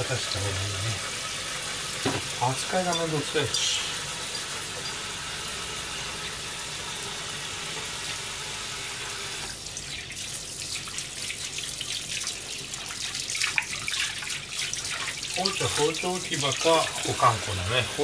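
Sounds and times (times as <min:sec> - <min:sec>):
tap water running into bowl: 0:00.0 - 0:18.0.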